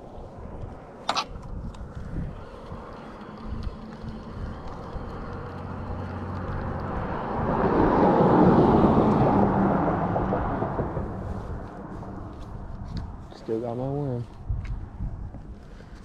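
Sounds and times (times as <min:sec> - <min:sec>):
pickup truck driving past: 0:03.8 - 0:12.3.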